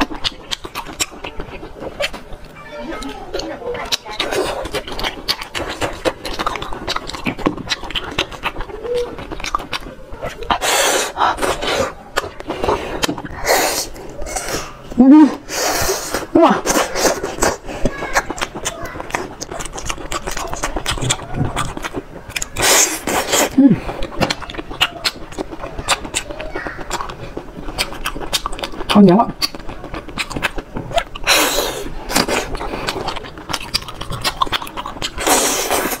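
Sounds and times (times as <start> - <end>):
lip smacks and clicks: 0.0 - 14.8, 15.6 - 36.0
sucking slurps: 3.0 - 36.0
slurping sucks: 10.5 - 17.9, 22.6 - 23.8, 35.2 - 36.0.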